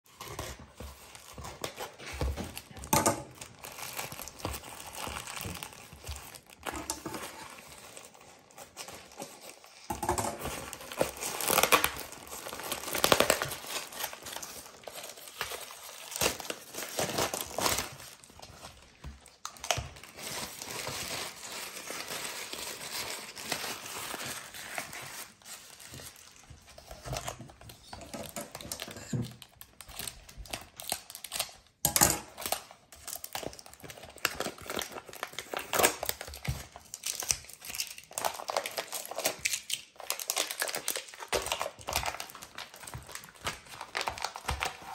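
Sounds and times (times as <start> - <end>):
scissors cutting plastic: 0.1 - 25.2, 26.8 - 44.9
plastic packaging crinkling: 0.1 - 44.9.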